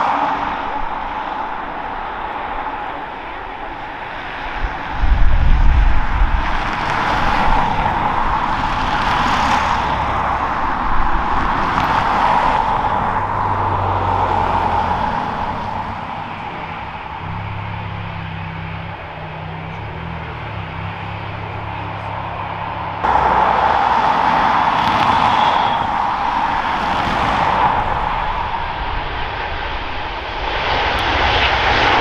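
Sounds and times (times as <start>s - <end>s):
jet engines whining and roaring: 0.0s - 32.0s
wind buffeting microphone: 0.4s - 17.6s, 23.8s - 32.0s.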